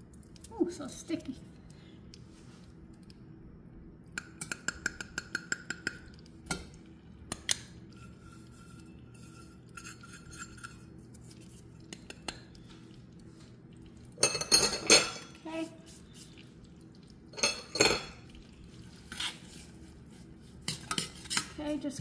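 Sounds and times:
metal cup tapping on saucepan: 4.2s - 6.7s.

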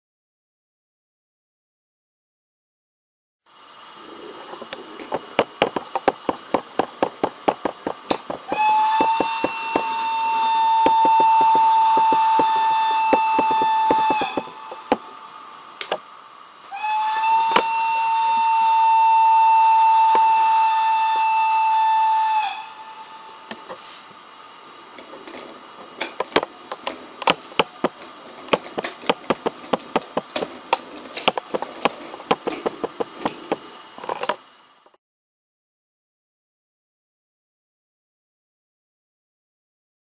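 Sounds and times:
toy train clicking over track: 4.6s - 15.0s
steady high whistle: 8.4s - 15.7s, 16.6s - 24.1s.

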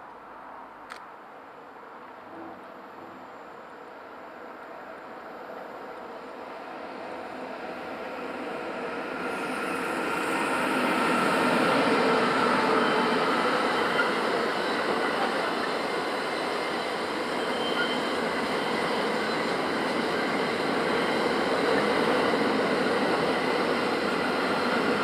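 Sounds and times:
train wheels rolling on rails: 5.8s - 25.0s
high ringing tone from wheels: 16.3s - 19.6s.

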